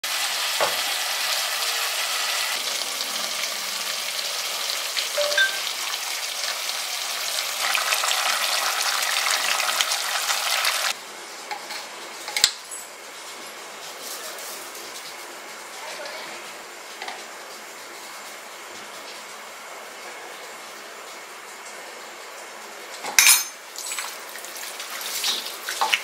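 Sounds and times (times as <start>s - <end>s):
food sizzling in a pot: 0.0s - 12.2s, 20.5s - 26.0s.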